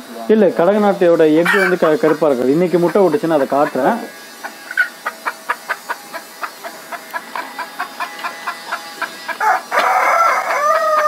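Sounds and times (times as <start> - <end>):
chickens clucking: 0.8 - 11.0
rooster crowing: 1.4 - 2.3, 7.8 - 11.0.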